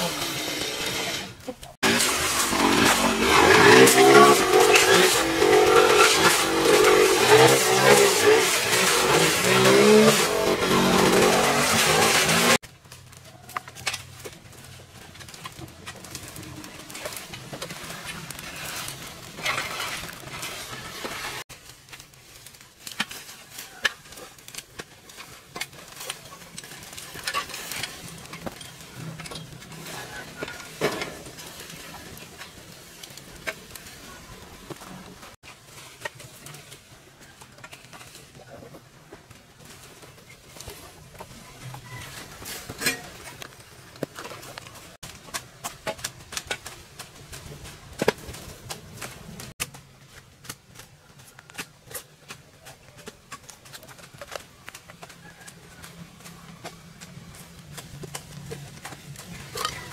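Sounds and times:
small engine running: 0.0s - 12.6s.

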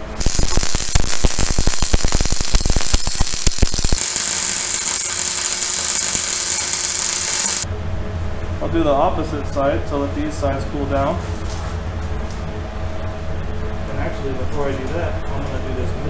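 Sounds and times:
welding arc crackling and hissing: 0.0s - 7.7s.

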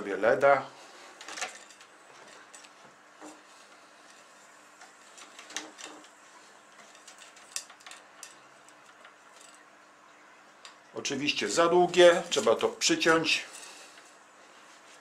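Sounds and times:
strip scraping against glass: 1.2s - 9.7s.

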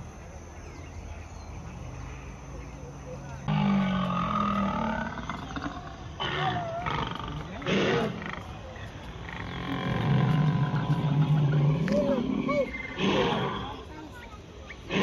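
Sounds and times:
dinosaur roar from loudspeaker: 3.5s - 8.4s, 9.4s - 13.7s.

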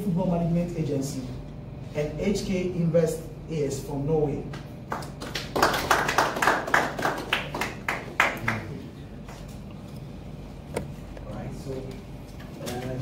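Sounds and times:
people clapping: 4.6s - 8.8s.

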